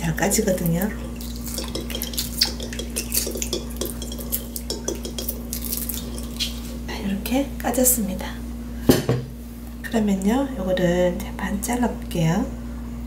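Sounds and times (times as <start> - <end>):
light water sounds: 0.2 - 6.9
eggshell crackling against glass: 0.5 - 6.9.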